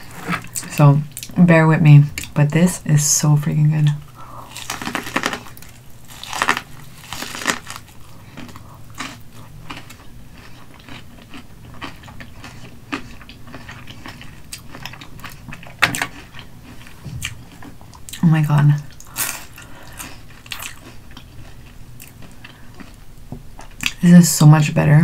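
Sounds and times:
chewing with small crunches: 4.0 - 24.0
crunchy bites into corn: 4.5 - 14.7.

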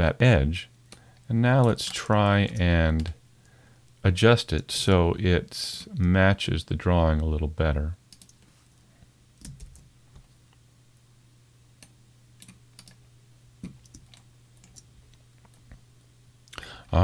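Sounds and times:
faint low hum: 0.0 - 17.0
computer keyboard clicks: 8.1 - 8.4, 9.4 - 9.9, 11.8 - 13.0, 13.6 - 14.9.

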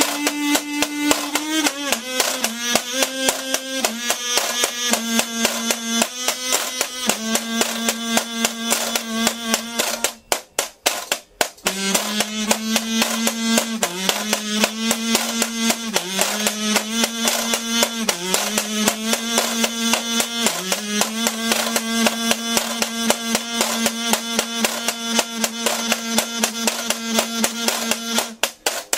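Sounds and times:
kazoo buzzing: 0.0 - 28.9.

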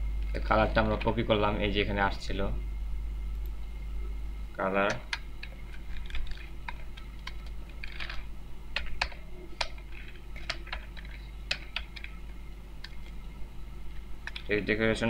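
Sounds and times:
keyboard typing: 8.8 - 13.1.

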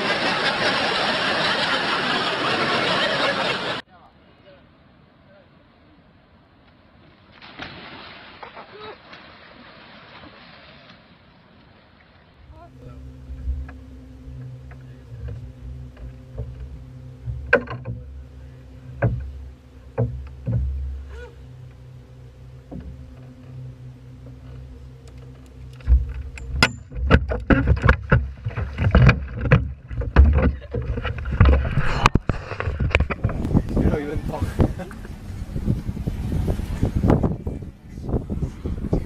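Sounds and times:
steady low hum: 12.4 - 39.0
knocks on boat deck: 18.9 - 21.0.

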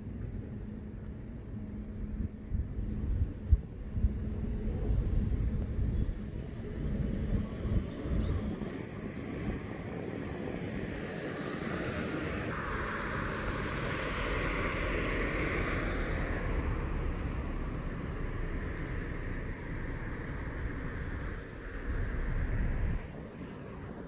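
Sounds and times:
vehicle passing: 11.8 - 23.1.

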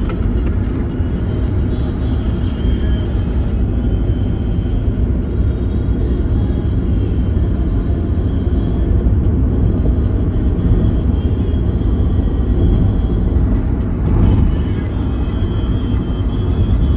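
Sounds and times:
loud low rumble: 9.1 - 16.9.

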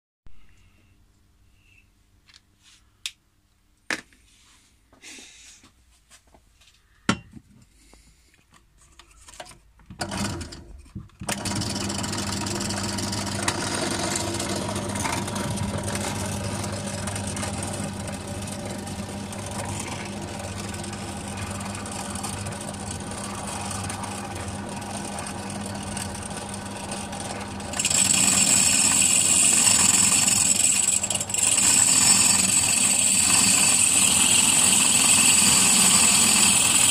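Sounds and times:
drill press motor humming: 10.0 - 36.9
drill bit grinding glass: 11.3 - 36.9.

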